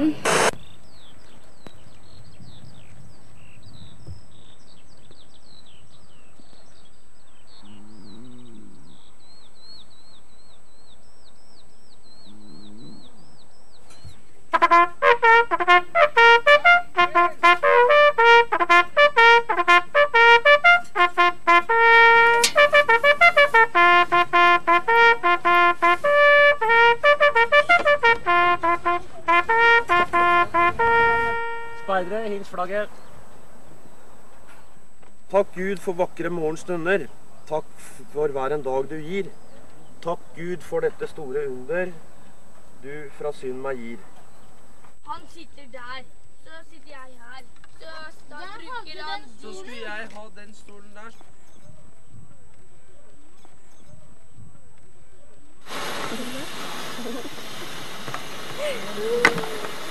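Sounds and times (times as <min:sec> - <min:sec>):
brass music with trumpet melody: 0:00.0 - 0:00.6, 0:14.5 - 0:32.5
birds chirping: 0:00.0 - 0:59.9.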